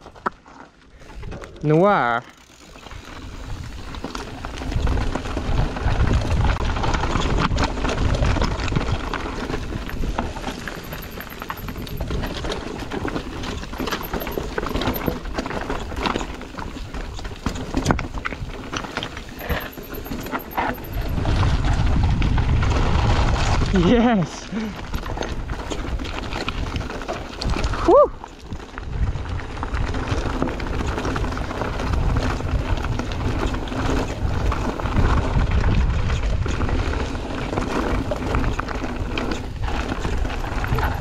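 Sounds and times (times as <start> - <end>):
bike rattling over bumps: 0.0 - 41.0
wind buffeting microphone: 3.3 - 15.1, 20.0 - 24.1, 24.7 - 41.0.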